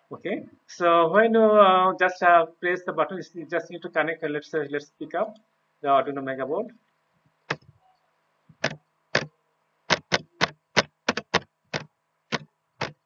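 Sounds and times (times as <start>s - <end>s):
keyboard keystrokes clicking: 8.6s - 9.3s, 9.9s - 13.0s.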